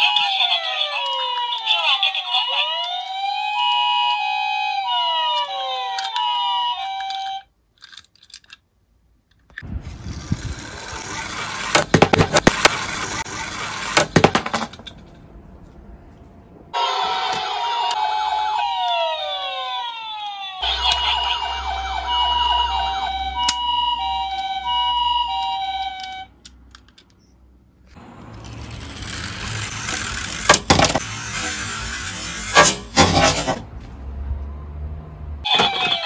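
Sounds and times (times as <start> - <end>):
two-tone ambulance siren: 0.0 - 7.5, 16.8 - 26.3, 35.4 - 36.0
toy car rolling on wooden board: 9.8 - 15.0, 28.3 - 33.6
sharp clacks of toy car: 11.0 - 15.0, 29.1 - 33.6.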